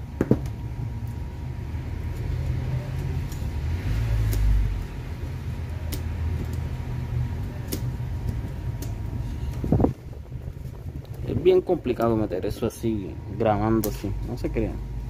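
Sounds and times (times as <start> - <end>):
steady low rumble: 0.0 - 15.0
metal tool clicking on wire: 1.9 - 6.8, 7.4 - 9.7.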